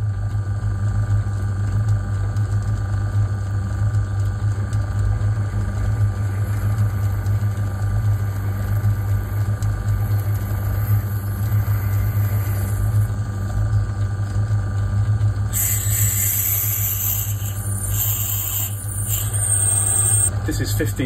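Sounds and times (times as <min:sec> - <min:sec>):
lathe running with low hum: 0:00.0 - 0:21.0
drill cutting into spinning bar: 0:08.2 - 0:13.1, 0:15.5 - 0:20.3.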